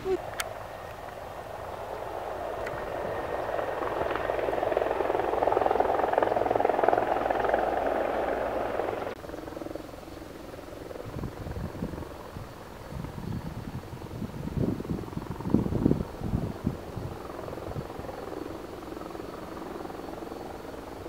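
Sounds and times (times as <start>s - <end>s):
jet engines running: 0.0s - 14.3s.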